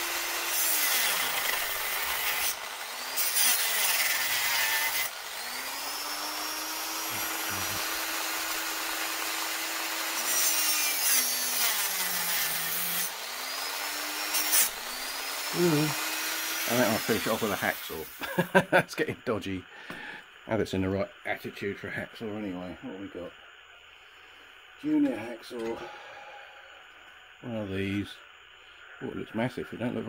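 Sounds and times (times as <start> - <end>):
power saw motor hum: 0.0 - 18.2
saw blade grinding metal: 0.0 - 18.2.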